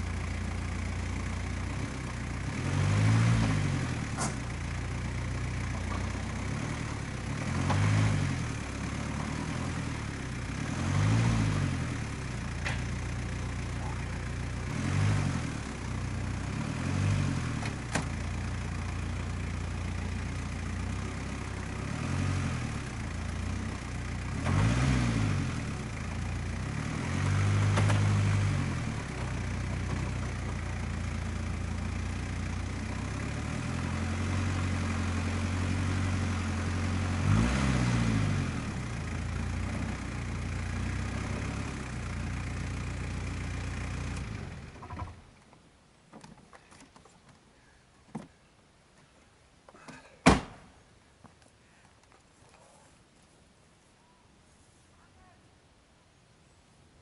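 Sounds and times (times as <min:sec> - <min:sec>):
engine idling and revving: 0:00.0 - 0:45.4.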